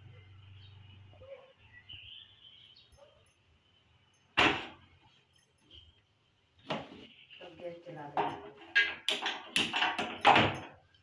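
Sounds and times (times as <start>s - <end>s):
pot clattering on stove: 8.2s - 10.8s.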